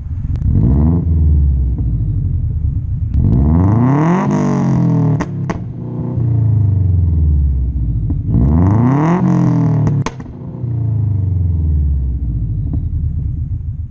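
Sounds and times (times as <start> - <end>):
sharp exhaust pops: 0.0 - 6.4, 7.8 - 11.7, 12.3 - 13.9
car engine idling and revving: 0.0 - 13.9.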